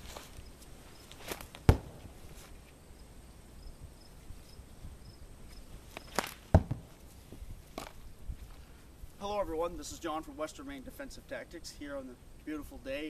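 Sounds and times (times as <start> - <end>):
faint insect chirping: 0.0 - 13.0
stones thudding on target: 1.2 - 2.3, 6.0 - 7.0.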